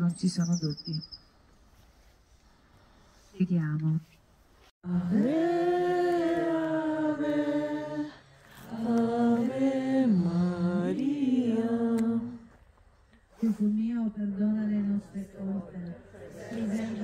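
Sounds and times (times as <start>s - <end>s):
group of voices singing: 4.8s - 12.6s, 14.1s - 17.0s.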